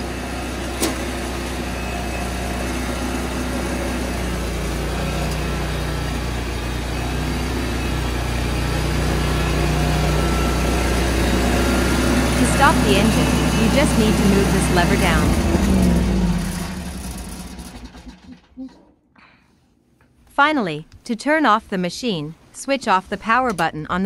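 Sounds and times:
mower engine running: 0.0s - 18.5s.

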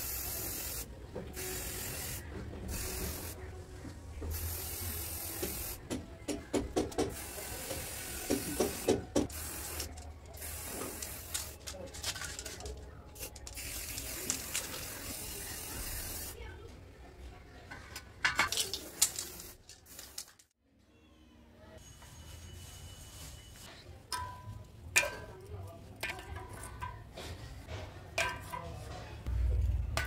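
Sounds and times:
spray can hissing: 0.0s - 3.4s, 4.3s - 5.8s, 7.0s - 12.3s, 13.2s - 16.4s, 18.5s - 20.4s.

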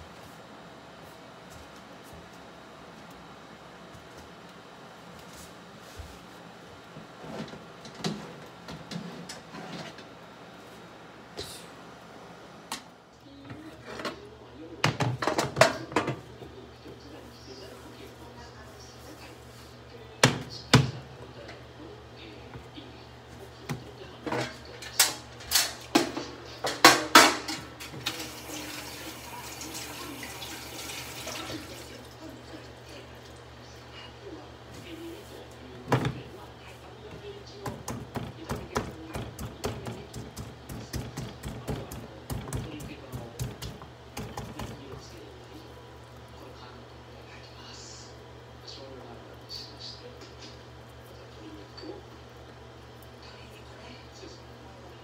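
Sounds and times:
metal oven tray scraping and clattering: 7.2s - 10.1s
dishes clattering: 24.2s - 28.2s
water tap running: 28.0s - 32.3s.

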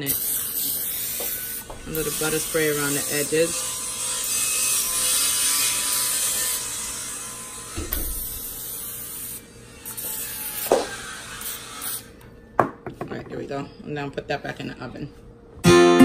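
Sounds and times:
cooking spray hissing: 0.0s - 7.1s.

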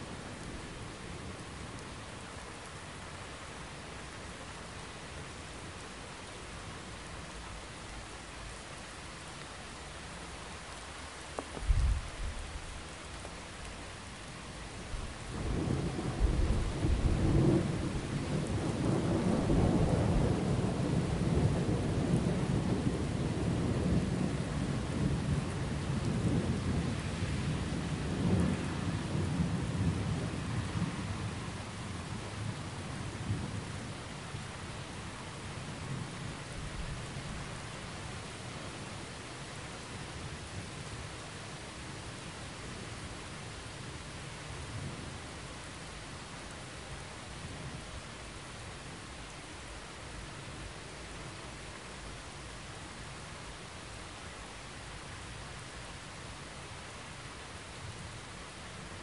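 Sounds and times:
steady rain: 0.0s - 59.0s
low thunder rumble: 11.6s - 12.8s, 14.9s - 31.4s.

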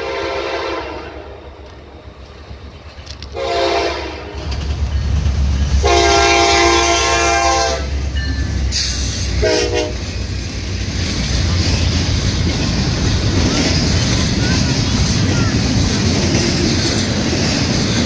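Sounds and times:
train air horn blasts: 0.0s - 1.4s, 3.3s - 4.5s, 5.8s - 8.0s, 8.9s - 10.1s
train rumbling past: 0.0s - 18.0s.

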